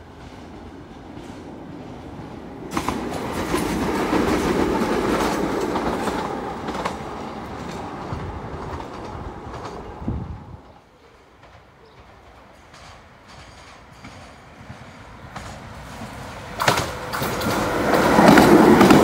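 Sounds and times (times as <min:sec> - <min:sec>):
electric train passing: 0:00.0 - 0:19.0
wheels clicking over rail joints: 0:11.4 - 0:19.0.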